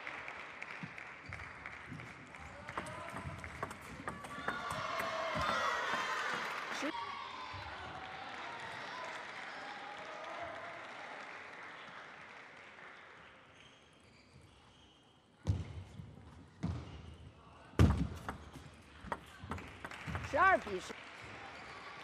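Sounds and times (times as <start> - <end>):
table tennis rally clicks: 2.7 - 6.4.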